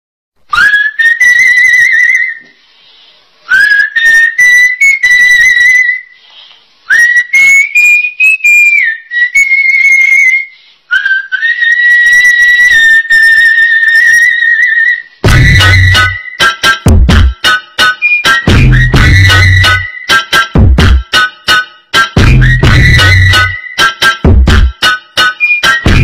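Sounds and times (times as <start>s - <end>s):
man whistling high notes: 6.9s - 17.2s, 17.8s - 20.6s, 22.0s - 26.0s.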